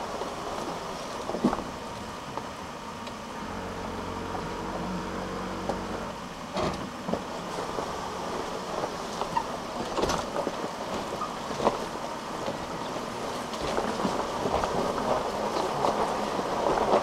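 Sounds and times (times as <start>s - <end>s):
low engine hum: 0.0s - 17.0s
vehicle knocks and rattles: 6.5s - 8.0s, 8.6s - 17.0s.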